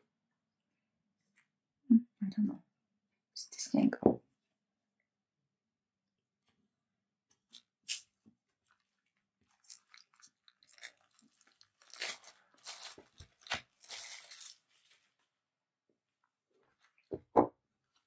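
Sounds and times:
wrapping tearing and crinkling: 7.5s - 15.3s.

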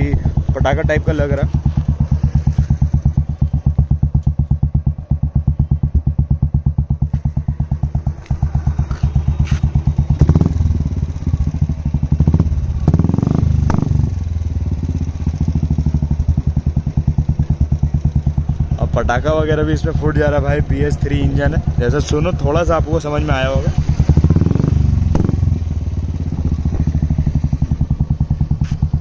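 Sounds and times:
motorcycle engine idling and revving: 0.0s - 29.0s
exhaust pops and crackles: 12.2s - 14.0s.

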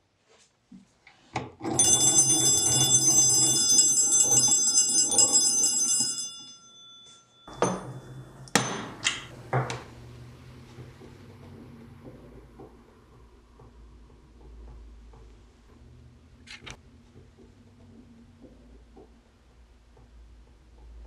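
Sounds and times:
hand crank whirr: 1.6s - 6.2s
telephone gongs ringing: 1.6s - 9.9s.

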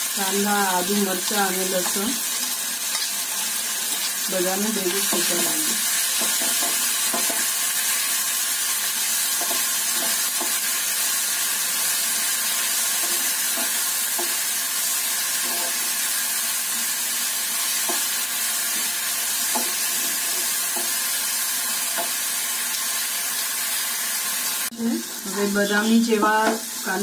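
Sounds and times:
vegetables sizzling in hot oil: 0.0s - 27.0s
spatula scraping and tapping pan: 6.2s - 7.5s, 9.4s - 10.6s, 15.4s - 15.9s, 17.8s - 18.1s, 19.5s - 21.0s.

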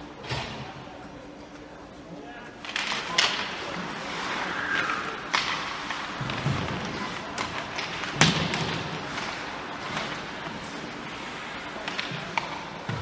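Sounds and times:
rink background noise: 0.0s - 13.0s
hockey puck knocking rink boards: 2.6s - 13.0s.

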